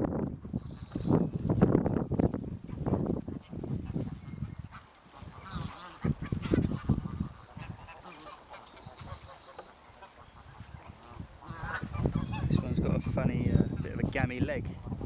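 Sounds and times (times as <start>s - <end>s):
geese honking: 2.7s - 12.7s.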